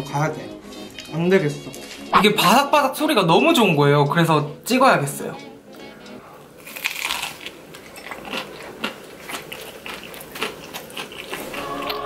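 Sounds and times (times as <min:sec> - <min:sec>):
chewing crispy crust: 0:06.6 - 0:12.0.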